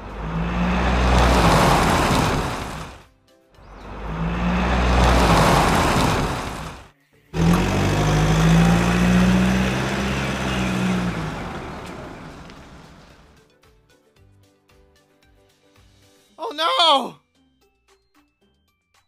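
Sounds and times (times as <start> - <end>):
truck engine running: 0.0 - 3.0, 3.8 - 6.8, 7.4 - 13.3.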